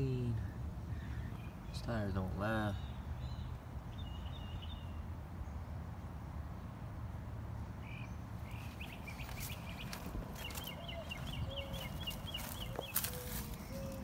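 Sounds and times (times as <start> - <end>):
high chirping animal calls: 8.5 - 14.0.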